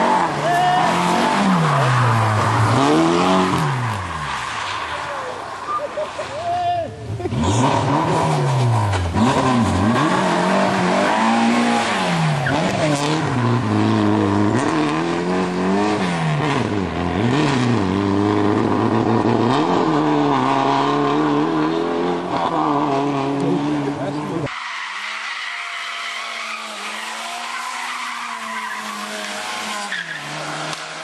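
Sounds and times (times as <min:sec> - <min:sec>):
rally car engine revving: 0:00.0 - 0:06.3, 0:07.0 - 0:31.0.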